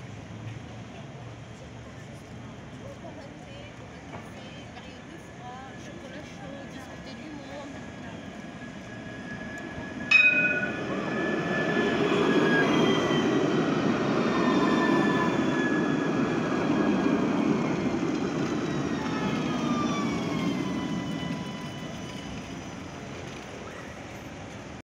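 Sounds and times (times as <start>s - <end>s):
tram braking to a stop: 4.0s - 24.8s
sharp strike with short ring: 10.1s - 10.9s.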